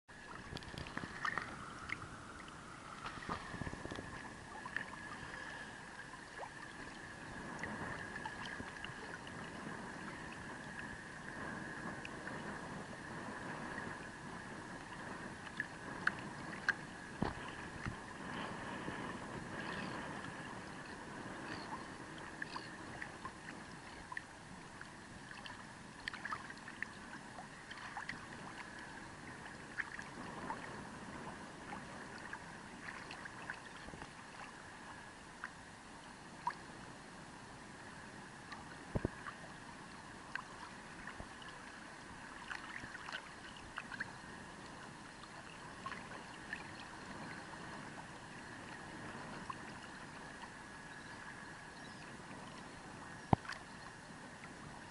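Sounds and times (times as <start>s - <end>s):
water plinks and trickles: 0.1s - 5.6s, 20.7s - 28.9s, 42.4s - 44.1s, 53.2s - 54.0s
soft steady hiss: 0.1s - 54.9s
water lapping in ripples: 0.1s - 54.9s.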